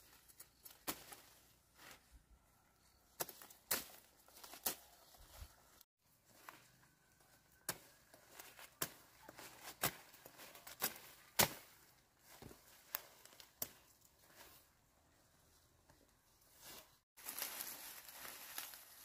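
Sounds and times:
machete chopping plant stems: 3.2s - 4.8s, 9.6s - 11.8s
leaves rustling: 16.4s - 19.0s.

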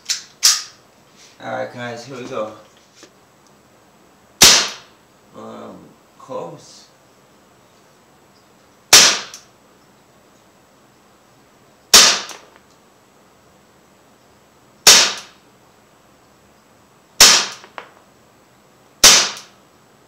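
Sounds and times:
pistol shots: 4.4s - 4.9s, 8.9s - 9.4s, 11.9s - 12.5s, 14.8s - 15.4s, 17.2s - 17.9s, 19.0s - 19.6s.

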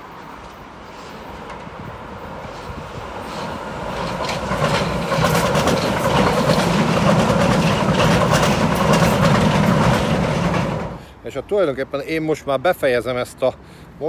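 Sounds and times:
train passing: 0.0s - 12.4s
wheels clattering over track: 0.4s - 11.0s.

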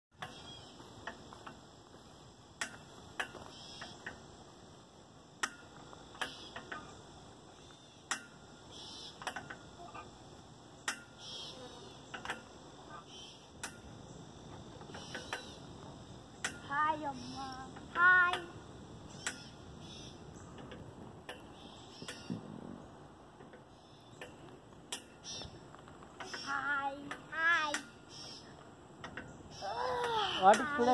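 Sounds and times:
high drone of insects: 0.1s - 30.9s
swing chains clicking: 5.4s - 7.1s, 8.1s - 10.2s, 10.8s - 14.0s, 14.6s - 19.7s, 29.0s - 30.9s.

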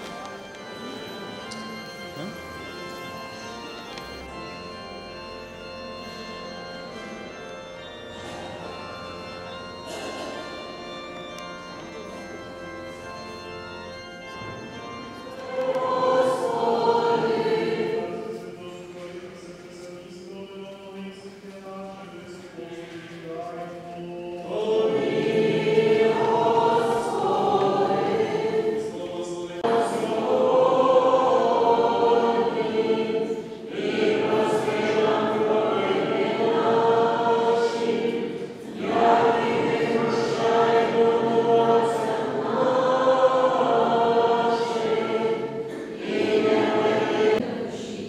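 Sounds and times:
choir singing: 13.2s - 48.0s.

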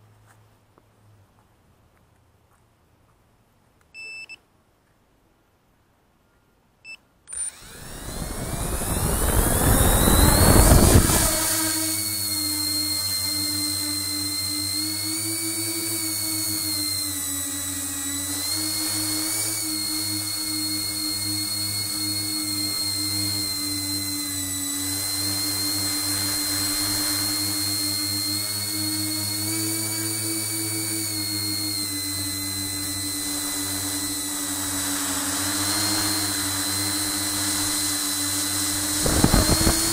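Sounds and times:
short electronic beeps: 3.9s - 4.4s
drone motors whining: 7.3s - 39.9s
propeller wash rush: 7.5s - 39.9s.

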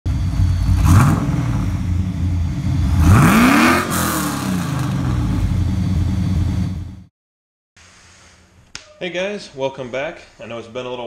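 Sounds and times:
engine revving: 0.1s - 7.1s.

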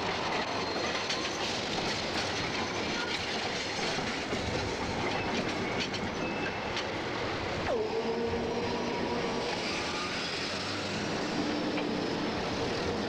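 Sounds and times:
rail clacks: 0.0s - 7.1s
tram wheels running on rails: 0.0s - 13.0s.

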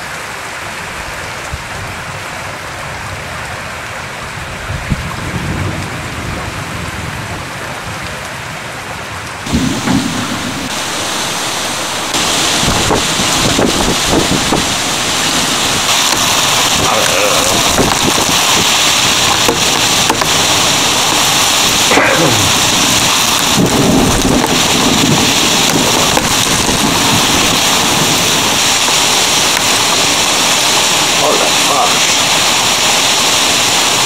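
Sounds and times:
strong wind: 1.0s - 34.0s
hailstones pelting window ledge: 9.5s - 34.0s.

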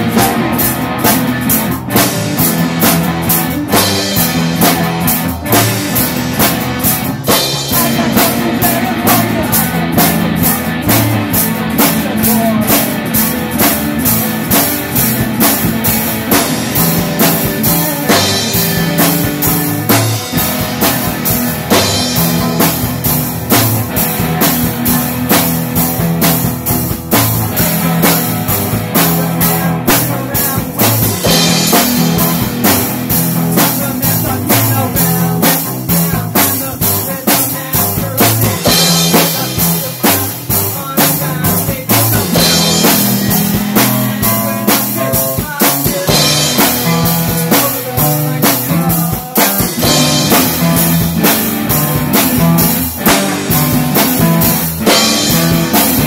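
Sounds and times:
bass line: 0.0s - 56.0s
drum kit beat: 0.0s - 56.0s
electric guitar: 0.0s - 56.0s.

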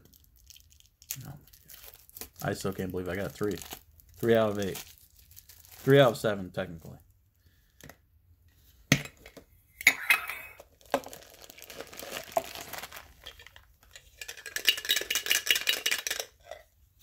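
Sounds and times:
metallic clinks and rattles: 13.2s - 16.6s.

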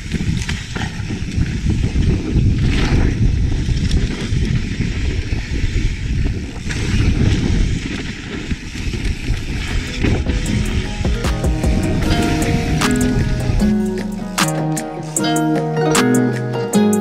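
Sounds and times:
bike tyres rolling over rock: 0.0s - 13.6s
wind noise on microphone: 0.0s - 14.2s
bike rattling: 0.0s - 15.4s.

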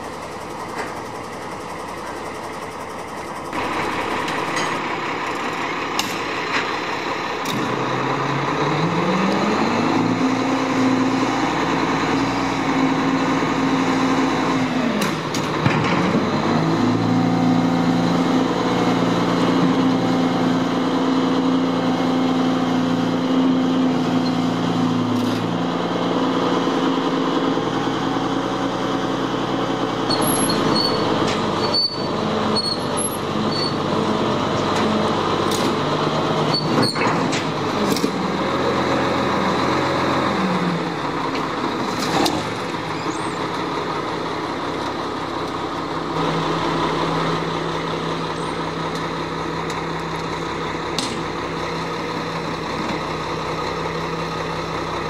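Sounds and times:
diesel truck engine running: 0.0s - 55.0s
metal container squealing: 30.1s - 33.9s, 36.5s - 37.3s.

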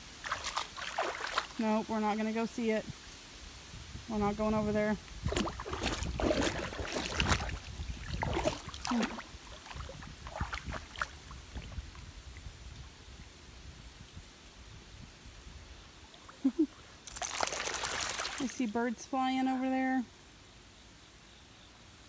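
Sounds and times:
wading through shallow water: 0.0s - 2.8s, 4.1s - 12.7s, 16.0s - 19.9s.

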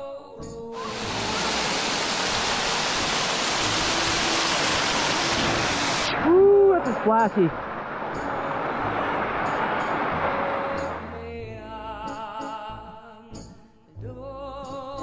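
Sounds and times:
loud rising and falling tone: 0.8s - 11.2s
waterfall splashing over rocks: 0.8s - 11.2s.

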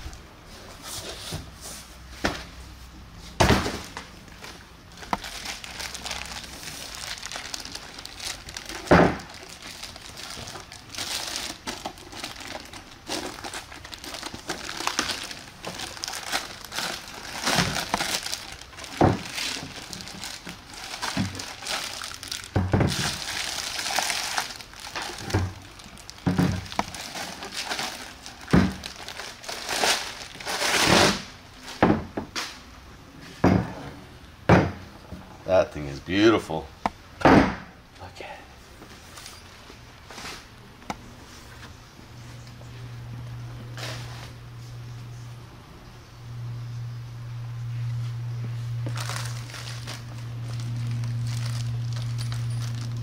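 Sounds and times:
cardboard packaging handled: 3.4s - 31.2s, 48.7s - 53.0s
plastic bag crinkling: 4.2s - 31.1s, 48.6s - 53.0s.

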